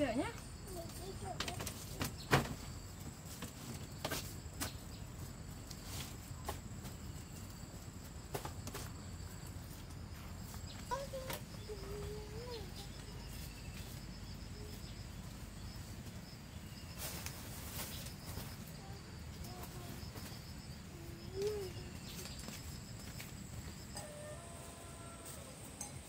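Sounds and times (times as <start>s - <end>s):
pulsing insect trill: 10.4s - 26.0s.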